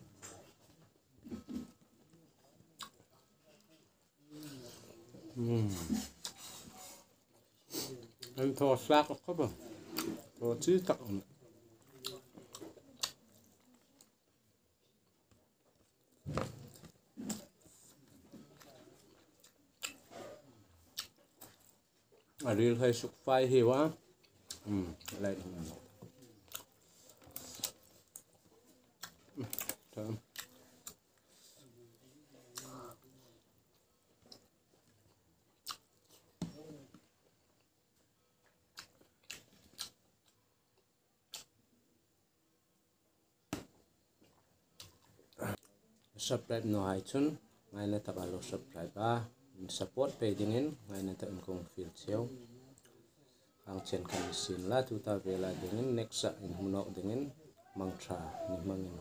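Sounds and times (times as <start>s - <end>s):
person chewing food: 15.0s - 22.4s, 24.1s - 31.5s, 32.5s - 36.7s, 37.5s - 41.6s
mouth clicks and smacks chewing: 20.9s - 22.4s, 35.1s - 36.2s, 38.4s - 41.6s.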